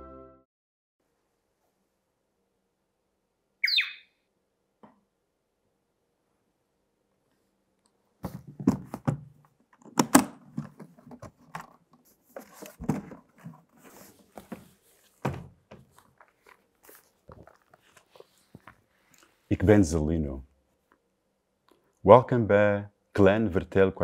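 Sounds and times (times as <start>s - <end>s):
knocks and thumps of handling: 8.2s - 18.8s
box lid opening: 9.9s - 14.6s.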